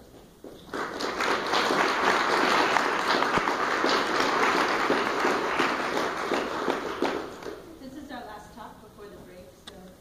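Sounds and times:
audience applauding: 0.6 - 7.6.

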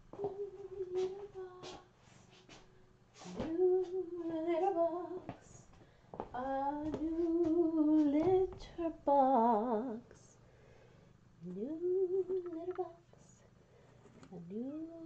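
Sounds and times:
woman humming: 11.4 - 13.0.

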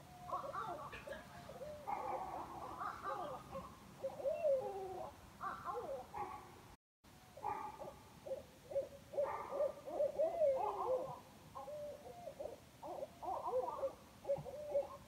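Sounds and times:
animal calls overlapping: 8.2 - 15.0.

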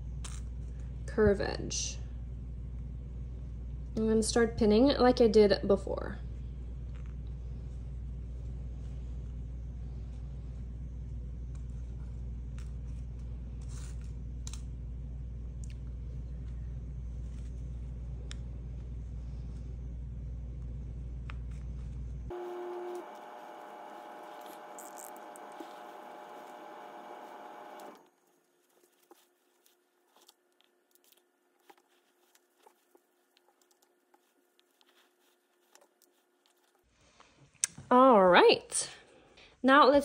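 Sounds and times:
low background hum: 0.0 - 40.0
hiss with faint whine: 22.4 - 28.1
pins and fabric rustling: 23.1 - 27.9.

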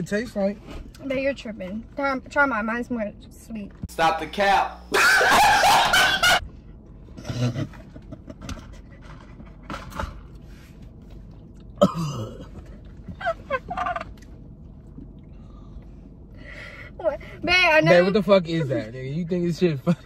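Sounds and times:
stifled laughter: 5.0 - 6.4, 7.2 - 8.9
man coughing and gasping: 11.8 - 12.7.

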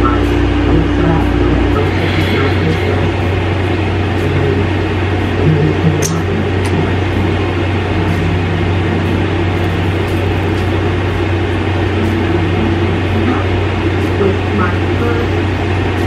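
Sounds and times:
air conditioner humming: 0.0 - 16.0.

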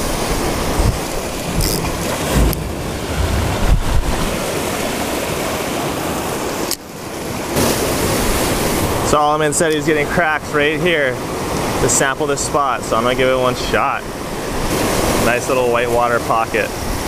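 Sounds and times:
wind buffeting microphone: 0.0 - 6.2
surf breaking on rocks: 0.0 - 6.6.

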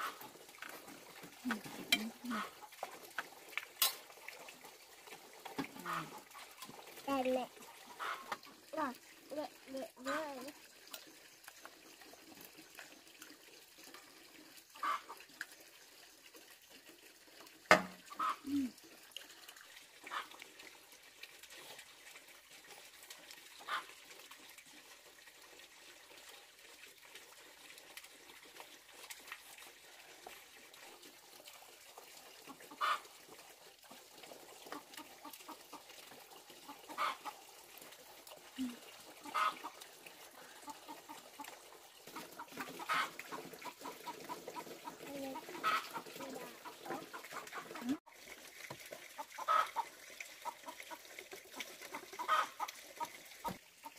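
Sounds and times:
chickens clucking: 36.6 - 37.4, 39.2 - 39.7, 42.1 - 48.0, 49.2 - 49.8, 51.9 - 53.6.

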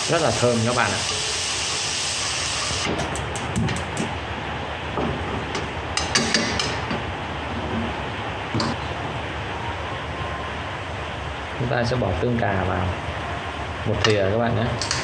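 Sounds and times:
aromatics sizzling in oil: 0.0 - 2.9
utensils stirring and clicking on pan: 14.0 - 15.0.

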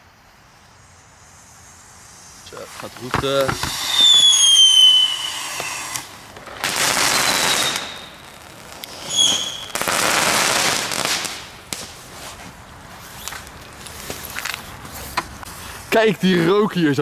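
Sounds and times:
firework hissing: 0.0 - 17.0
short high whistle: 3.8 - 6.0, 9.1 - 9.8.

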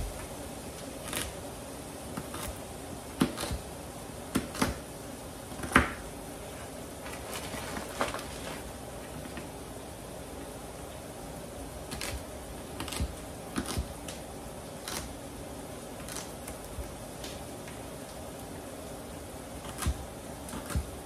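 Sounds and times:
steady background noise: 0.0 - 21.0
knife chopping on plastic board: 2.2 - 3.6, 4.3 - 4.8, 5.5 - 6.0, 19.6 - 21.0.

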